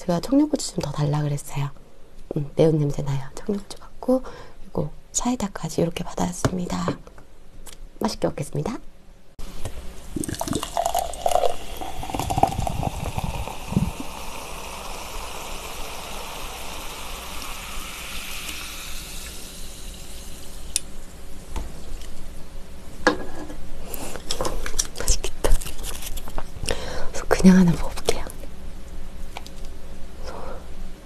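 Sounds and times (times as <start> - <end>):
glass and can clinking: 10.2 - 14.2
soda fizzing as poured into glass: 10.2 - 20.8.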